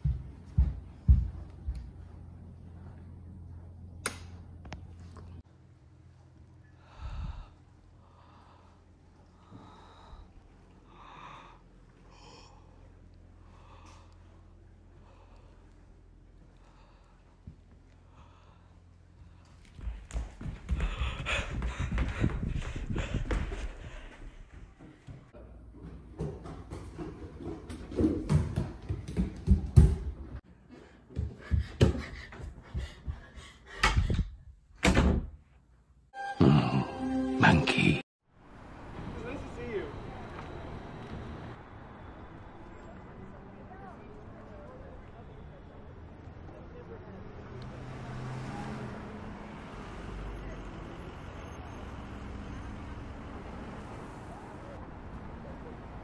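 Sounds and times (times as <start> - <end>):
person breathing heavily: 6.7 - 25.2, 30.7 - 34.4.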